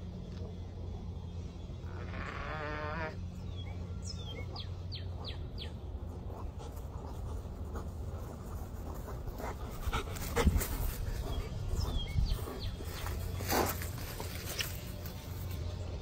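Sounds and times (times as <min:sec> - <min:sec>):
dog panting: 0:06.0 - 0:14.4.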